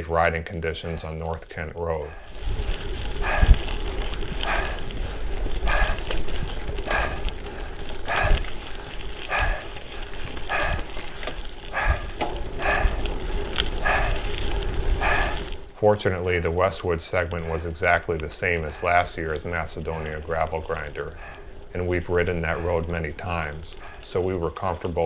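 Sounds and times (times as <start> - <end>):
person breathing hard: 2.0 - 15.7, 18.6 - 24.2
wind rumble on microphone: 2.1 - 15.8.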